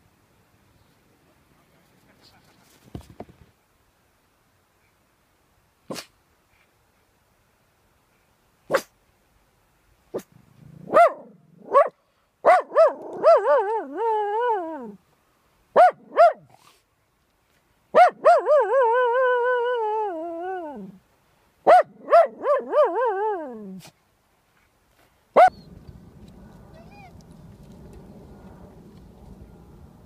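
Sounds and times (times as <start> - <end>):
dog barking and howling: 10.9 - 15.0, 15.8 - 16.4, 18.0 - 21.0, 21.7 - 23.8, 25.4 - 25.7.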